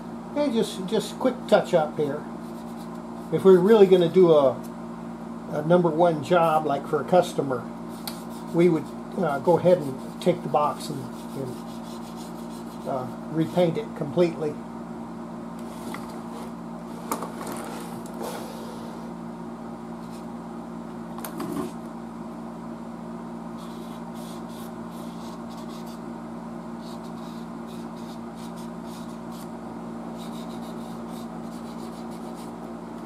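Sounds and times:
steady low hum: 0.0s - 33.0s
marker scratching on cabinet: 2.4s - 3.6s, 10.9s - 12.9s, 23.6s - 26.0s, 26.8s - 29.5s, 30.2s - 32.6s.

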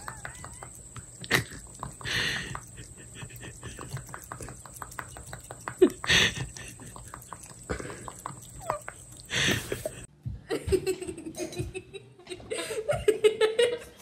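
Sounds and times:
person laughing: 1.2s - 4.3s, 5.8s - 7.1s, 9.3s - 13.9s.

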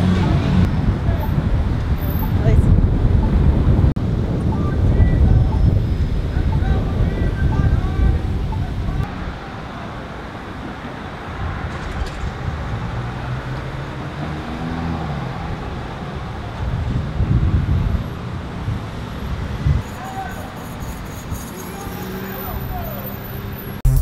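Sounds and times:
cars driving past: 9.0s - 24.0s.

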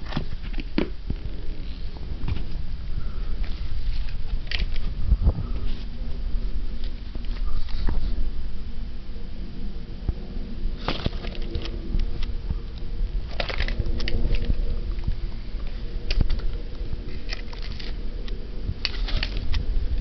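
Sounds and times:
low steady hum: 0.0s - 20.0s
handling clicks and rustles: 3.3s - 8.2s, 10.8s - 20.0s.

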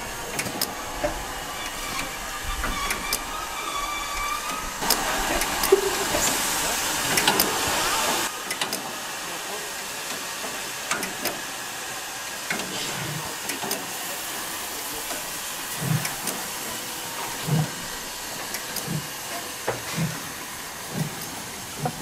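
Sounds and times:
steam hissing: 0.0s - 22.0s
steam locomotive rolling: 0.0s - 22.0s.

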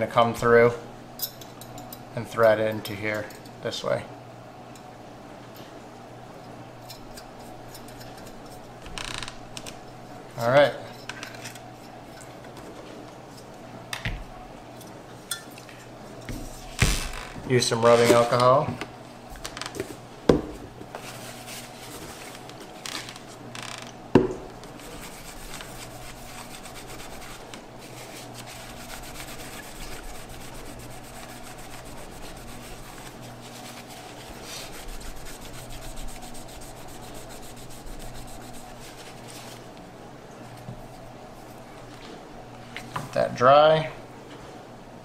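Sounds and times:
cloth wiping metal lid: 24.8s - 39.6s.

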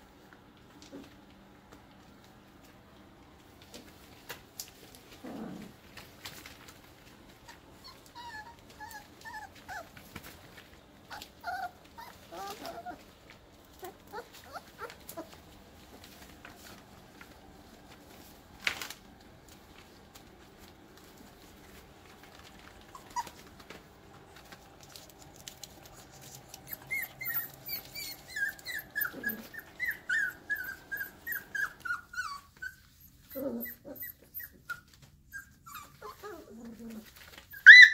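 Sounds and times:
puppies whimpering and squealing: 7.4s - 10.2s, 11.0s - 13.1s, 13.7s - 15.4s, 22.9s - 23.6s, 26.3s - 37.9s.

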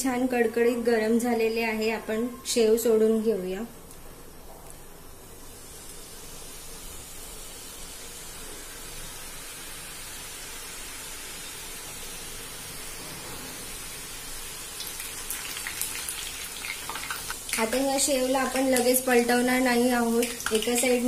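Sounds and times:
dough sizzling in hot oil: 5.2s - 21.0s.

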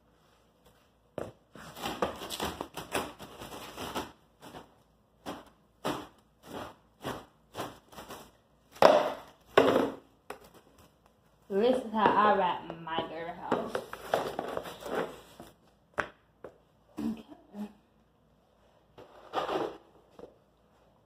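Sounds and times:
plastic wrap crackling off roll: 1.8s - 9.6s.

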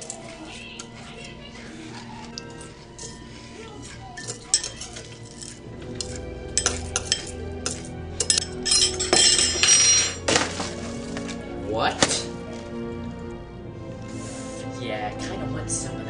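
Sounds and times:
background music: 0.0s - 16.0s
spoon clinking against ceramic bowl: 2.4s - 10.2s.

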